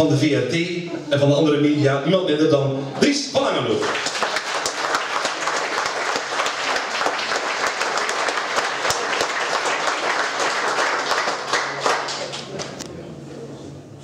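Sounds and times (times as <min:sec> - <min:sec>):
audience applauding: 0:03.7 - 0:12.8.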